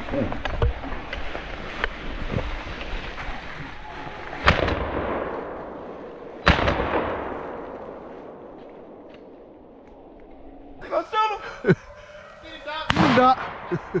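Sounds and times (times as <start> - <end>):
shotgun shots echoing: 6.4 - 9.1, 12.9 - 14.0.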